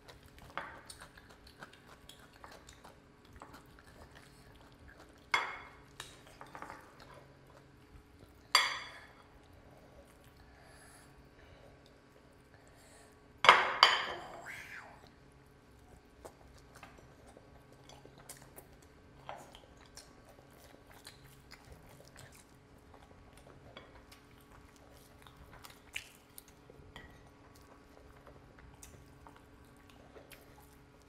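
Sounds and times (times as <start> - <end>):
wet clicks and squishes of food: 0.0 - 8.5, 15.0 - 31.0
chewing: 0.0 - 12.5, 15.0 - 31.0.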